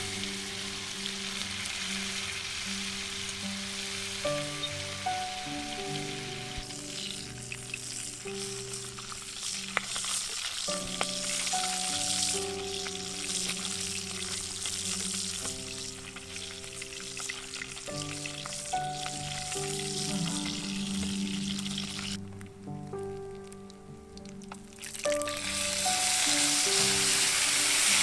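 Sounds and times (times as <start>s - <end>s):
fish sizzling in hot oil: 0.0s - 22.4s, 24.2s - 28.0s
soft background music: 0.0s - 28.0s.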